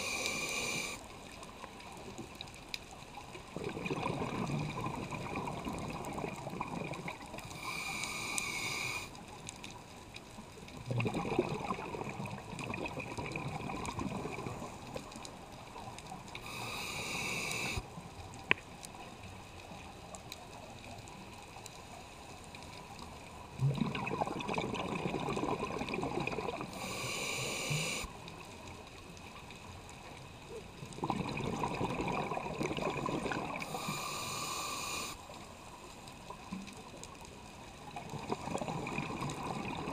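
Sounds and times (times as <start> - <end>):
regulator air hiss: 0.0 - 1.0, 7.6 - 9.1, 16.4 - 17.8, 26.7 - 28.1, 33.6 - 35.2
exhaled air bubbling: 3.4 - 9.1, 10.7 - 17.9, 23.4 - 28.1, 30.7 - 35.2, 37.8 - 39.9.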